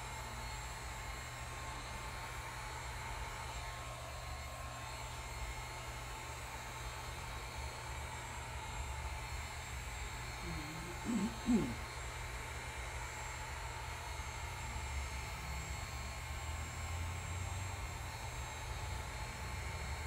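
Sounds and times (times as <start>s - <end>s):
person making wavering vocal sound: 10.4s - 11.8s.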